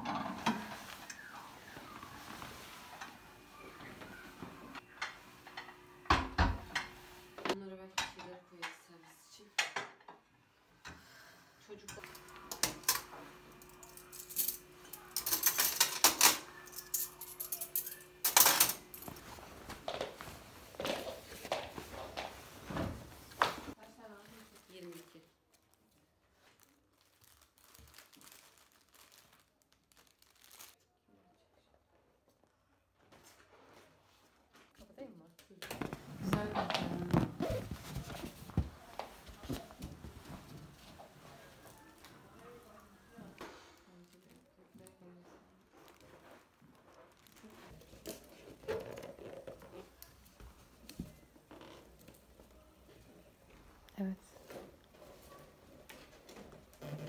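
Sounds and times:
crinkling and rustling: 0:12.0 - 0:30.8, 0:32.3 - 0:57.0.

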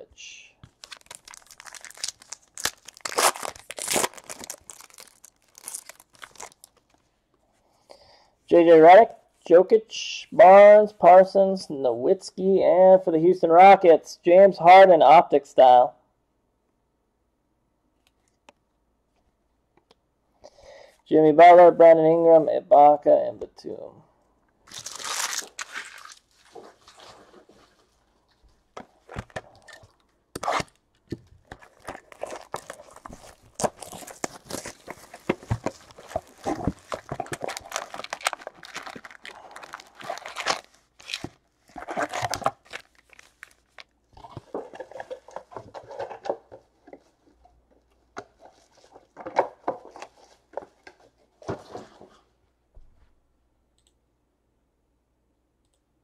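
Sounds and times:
foil packs crinkling: 0:00.6 - 0:07.0, 0:24.7 - 0:27.2, 0:31.4 - 0:46.0
cardboard tearing: 0:00.7 - 0:06.7, 0:24.7 - 0:27.3, 0:29.0 - 0:30.8, 0:31.4 - 0:43.8.

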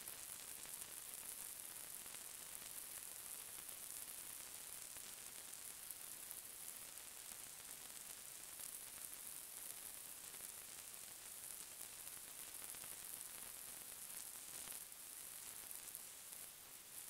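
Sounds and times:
faint high-pitched hiss: 0:00.0 - 0:17.0.

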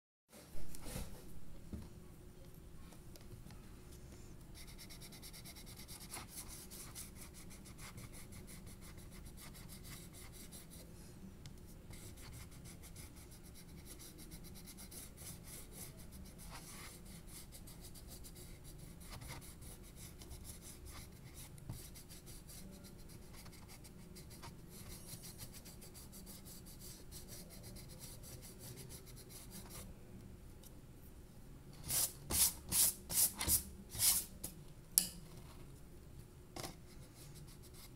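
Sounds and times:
paintbrush strokes on paper: 0:11.9 - 0:29.9.

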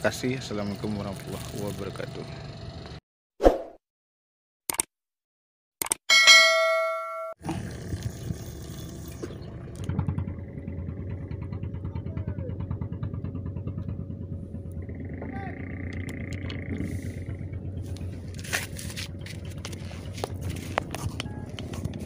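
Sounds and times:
engine running at low pitch: 0:00.0 - 0:03.0, 0:07.4 - 0:22.0
sharp click: 0:04.7 - 0:04.9, 0:05.8 - 0:06.0.

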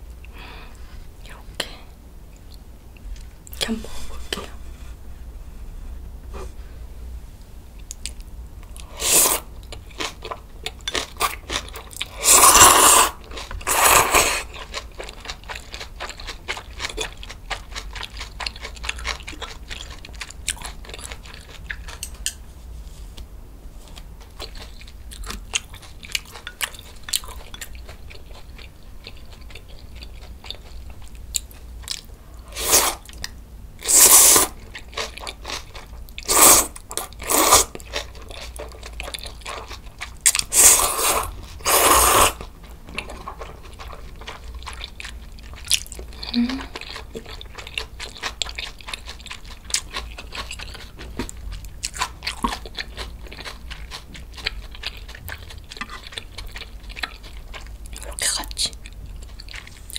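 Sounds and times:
loud noodle slurps: 0:09.0 - 0:09.4, 0:12.2 - 0:14.5, 0:33.9 - 0:34.5, 0:36.3 - 0:37.7, 0:40.5 - 0:42.4.

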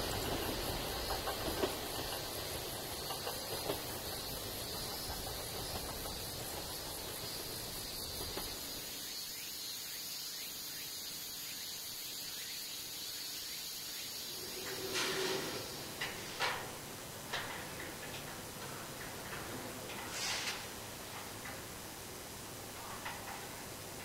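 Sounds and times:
insects trilling: 0:00.0 - 0:24.0.

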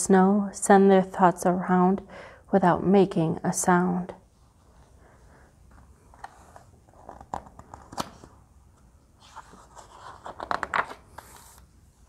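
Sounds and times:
book page turning: 0:06.1 - 0:11.7
paper rustling: 0:09.2 - 0:11.7.

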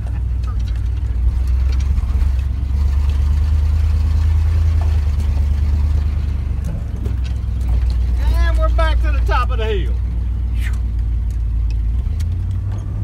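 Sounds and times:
light rattles: 0:00.0 - 0:09.1
vehicle engine and road rumble: 0:00.0 - 0:13.0.

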